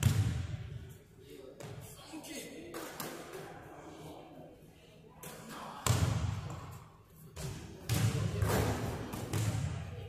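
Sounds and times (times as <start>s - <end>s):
basketballs bouncing on wooden floor: 7.4s - 9.8s.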